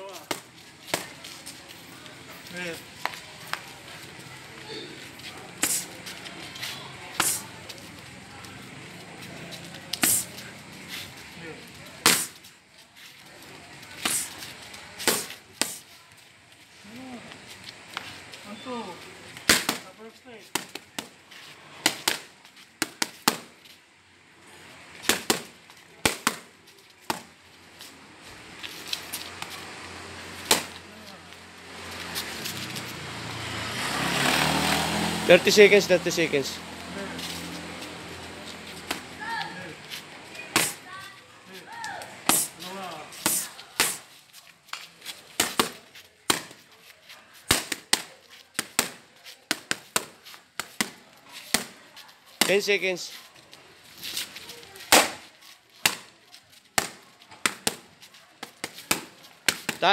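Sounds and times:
boxing gloves smacking mitts: 0.0s - 1.6s, 4.7s - 7.9s, 9.7s - 11.1s, 11.9s - 12.5s, 13.9s - 15.9s, 19.4s - 23.8s, 24.9s - 27.9s, 30.3s - 31.2s, 37.0s - 40.8s, 41.7s - 46.6s, 47.4s - 53.2s, 54.0s - 59.9s
boxing glove punches smacking hands: 40.5s - 40.8s, 43.2s - 44.0s, 54.9s - 55.2s.

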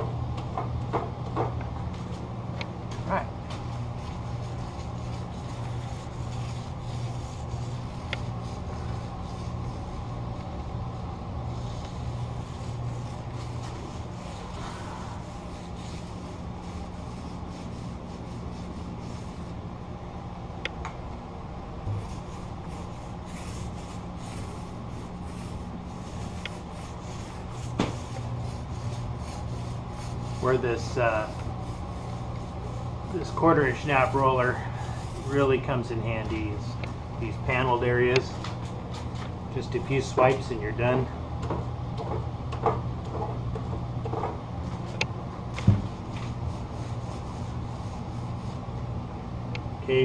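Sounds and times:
steady low hum: 0.0s - 50.0s
paint roller swishing: 3.5s - 10.5s, 11.4s - 19.6s, 21.9s - 39.0s, 45.8s - 48.7s
paint roller in metal tray: 25.3s - 36.6s
heavy knock: 45.6s - 45.9s.

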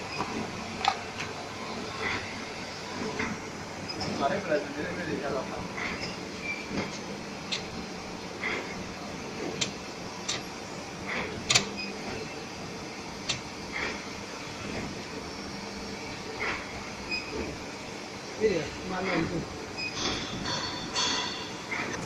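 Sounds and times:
machine squeaks: 3.8s - 4.4s, 5.8s - 6.8s, 11.6s - 12.2s, 17.0s - 17.6s, 19.1s - 22.0s.

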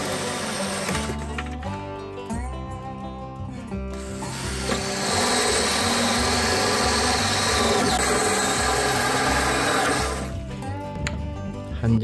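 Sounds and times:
hole saw cutting plastic: 0.0s - 1.3s, 4.0s - 10.4s
power drill whining: 0.0s - 1.4s, 3.9s - 10.4s.

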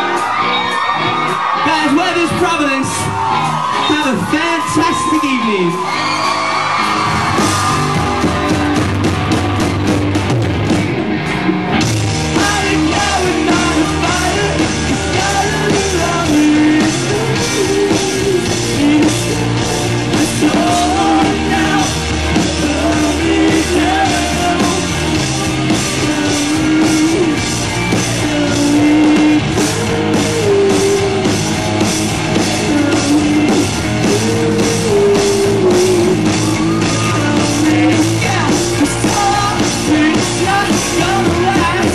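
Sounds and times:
live rock band playing: 0.0s - 41.9s
person singing: 12.3s - 31.5s, 32.3s - 41.9s.

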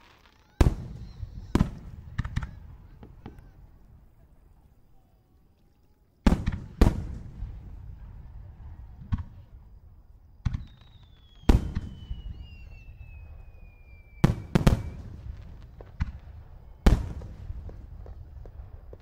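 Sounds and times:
faint falling whistle: 0.0s - 3.6s, 10.6s - 15.2s
firework shells booming: 0.0s - 3.8s, 6.2s - 19.0s.

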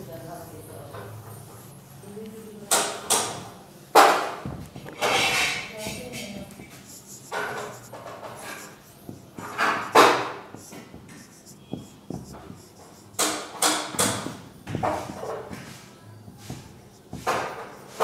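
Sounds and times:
marker writing on whiteboard: 4.0s - 18.0s.

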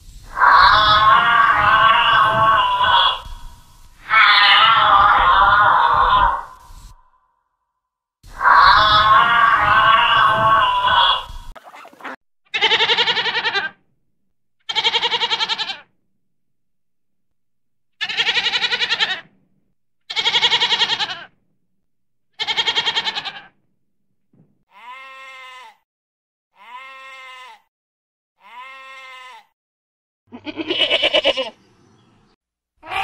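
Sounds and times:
goat kid bleating: 4.1s - 6.4s, 12.5s - 13.8s, 14.7s - 15.9s, 18.0s - 19.3s, 20.1s - 21.3s, 22.4s - 23.5s, 24.7s - 25.8s, 26.6s - 27.7s, 28.4s - 29.5s, 30.3s - 31.6s.

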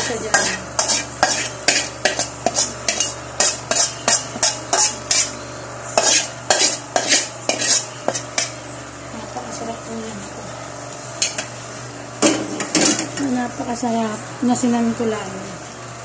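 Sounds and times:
metal spatula scraping a wok: 0.0s - 8.5s.

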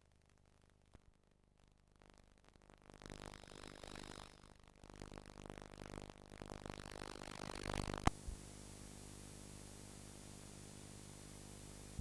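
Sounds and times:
line hiss with low hum: 2.7s - 12.0s.

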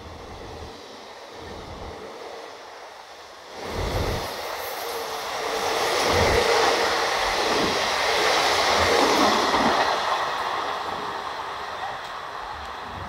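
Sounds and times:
train wheels rushing on rails: 0.0s - 13.0s.

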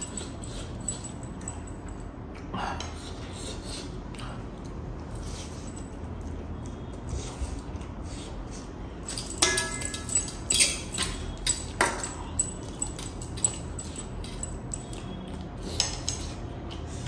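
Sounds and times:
fork clinking on metal plate: 9.1s - 15.2s.

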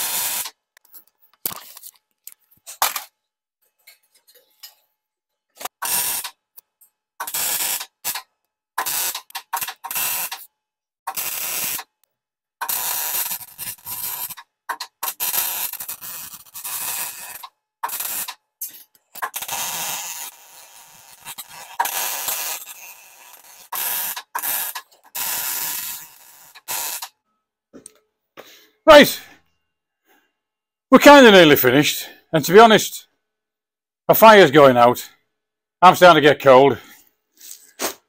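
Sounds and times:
welder arc crackling: 5.6s - 6.4s, 7.2s - 10.4s, 11.1s - 11.9s, 12.6s - 18.4s, 19.2s - 27.1s.

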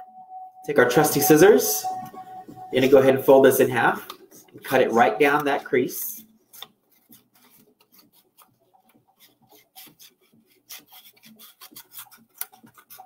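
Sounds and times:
scissors cutting paper: 6.5s - 13.0s.

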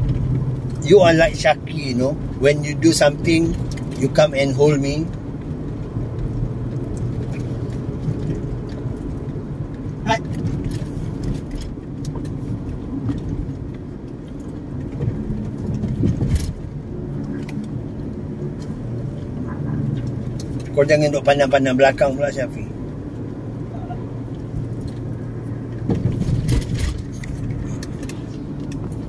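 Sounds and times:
car cabin road rumble: 0.0s - 29.0s.

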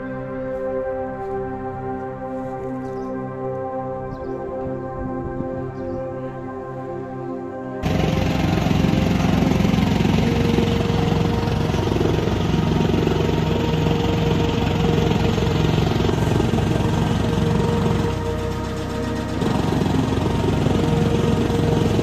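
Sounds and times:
chopping machine engine running: 7.8s - 22.0s.

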